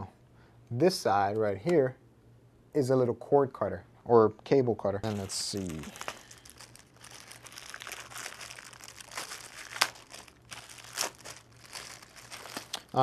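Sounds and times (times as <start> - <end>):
plastic bag crinkling: 5.0 - 13.0.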